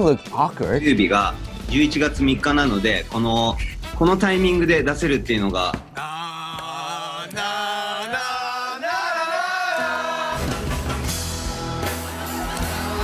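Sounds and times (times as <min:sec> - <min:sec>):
men singing and chanting: 0:05.5 - 0:10.7.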